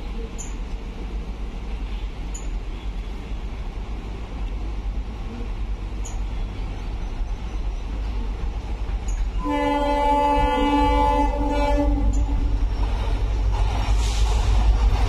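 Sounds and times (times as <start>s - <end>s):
diesel locomotive rumble: 0.0s - 15.0s
locomotive air horn chord: 9.4s - 12.5s.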